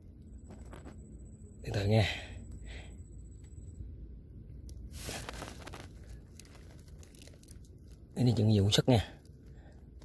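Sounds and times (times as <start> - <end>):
short scraping rustle: 4.9 - 6.8.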